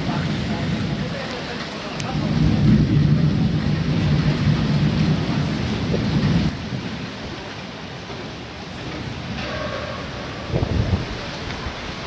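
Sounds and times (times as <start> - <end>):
thunder rumbling: 0.0 - 7.5, 9.1 - 12.0
rain falling: 0.0 - 12.0.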